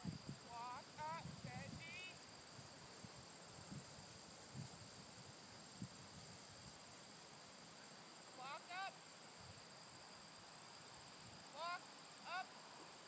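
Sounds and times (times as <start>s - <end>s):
crickets trilling: 0.0s - 13.0s.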